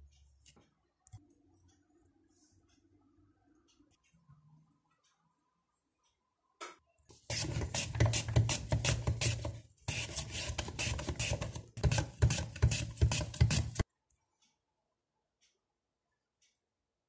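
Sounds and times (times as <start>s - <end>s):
potato scraping on slicer blade: 7.2s - 13.8s.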